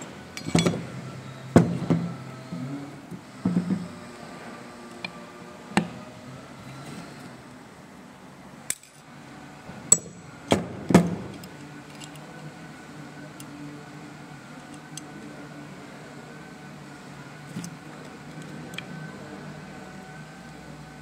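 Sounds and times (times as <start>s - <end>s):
metal parts clicking and clinking: 0.4s - 0.8s, 8.7s - 9.1s, 11.3s - 12.4s.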